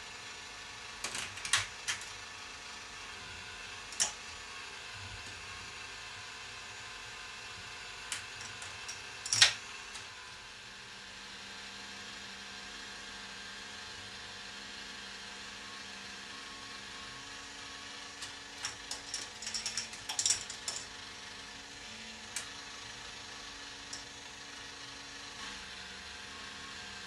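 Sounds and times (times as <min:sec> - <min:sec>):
mechanical hum of machine: 0:00.0 - 0:27.0
balls clicking on plastic track: 0:01.0 - 0:02.2, 0:08.1 - 0:09.6, 0:18.2 - 0:21.0.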